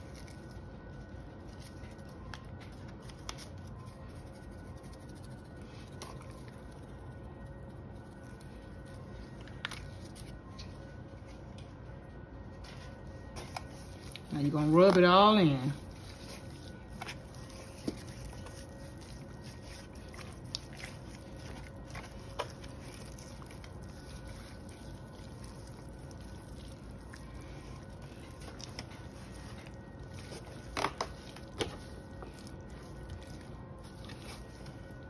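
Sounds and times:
hands handling wet meat: 12.5s - 35.0s.

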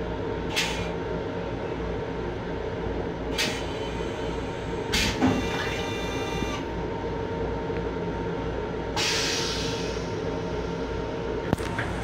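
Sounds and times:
train rumble: 7.5s - 12.0s.

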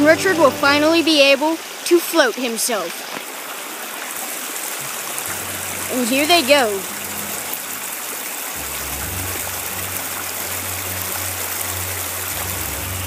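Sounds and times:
creek splashing over stones: 0.0s - 13.0s
low rumble: 4.8s - 13.0s.

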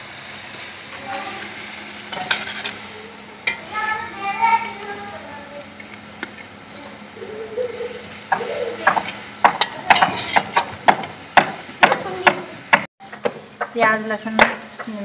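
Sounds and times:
onions frying in oil: 0.0s - 15.0s
metal spatula scraping a pan: 2.1s - 3.6s, 8.3s - 10.7s.

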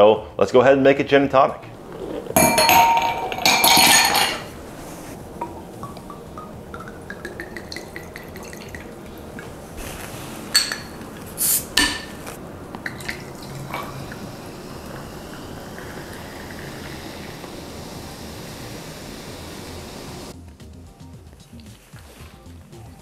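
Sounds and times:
ice cubes clinking in a glass: 2.4s - 4.5s
liquid poured over ice: 5.8s - 9.6s, 12.8s - 18.1s
bottle cap clicks and hiss: 10.5s - 13.1s.

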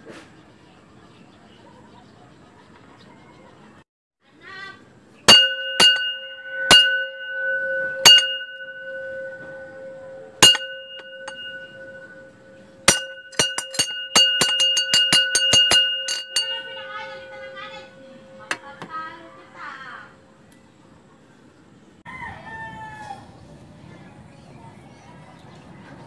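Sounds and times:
ringing object tapped: 5.3s - 19.2s.

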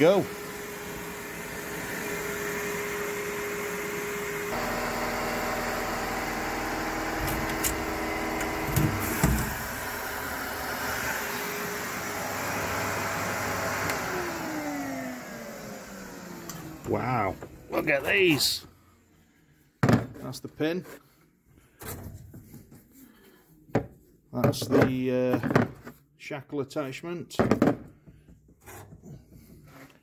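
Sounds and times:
extractor motor hum: 0.0s - 18.2s.

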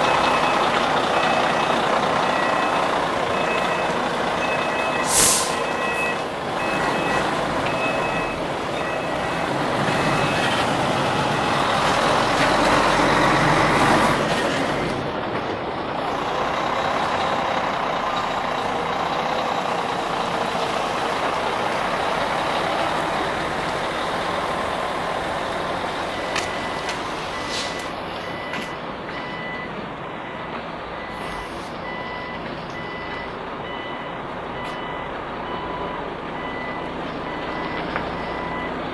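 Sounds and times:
reversing alarm beeping: 0.0s - 11.8s, 26.1s - 38.8s
truck diesel engine running: 0.0s - 38.9s.

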